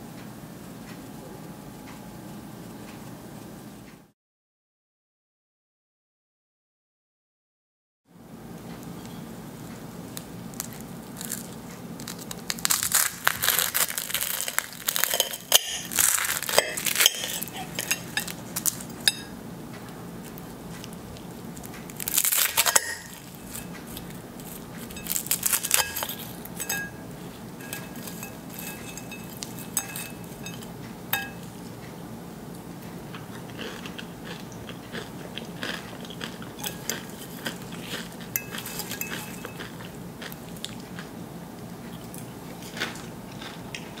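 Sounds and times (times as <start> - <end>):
pastry crackling under knife: 10.2 - 19.4, 20.2 - 31.5, 36.5 - 39.8.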